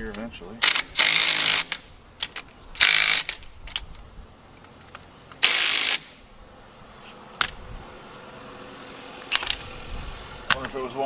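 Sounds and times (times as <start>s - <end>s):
power tool driving bolts: 0.6s - 6.2s, 9.2s - 9.7s.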